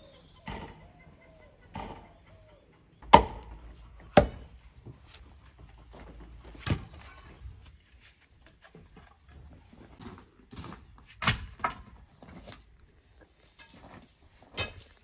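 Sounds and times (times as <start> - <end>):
axe chopping wood: 3.0 - 4.5, 11.2 - 11.8.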